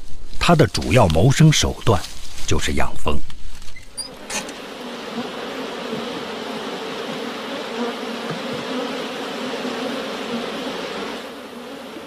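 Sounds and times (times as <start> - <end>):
honeybees buzzing: 3.9 - 12.0.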